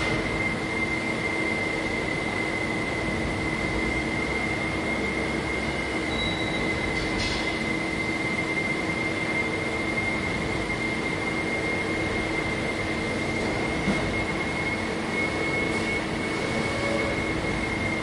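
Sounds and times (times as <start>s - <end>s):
high-pitched whine: 0.0s - 18.0s
machinery noise: 13.0s - 18.0s.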